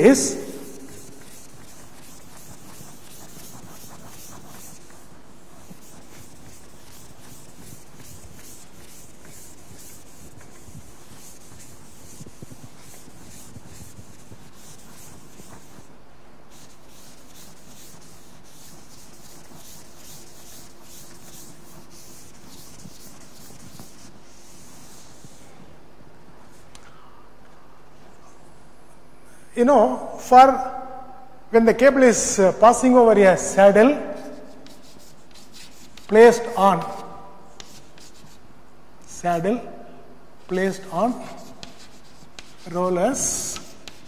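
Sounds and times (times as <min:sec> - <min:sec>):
duster rubbing on chalkboard: 0:00.0 - 0:25.6, 0:34.1 - 0:38.4, 0:40.5 - 0:44.0.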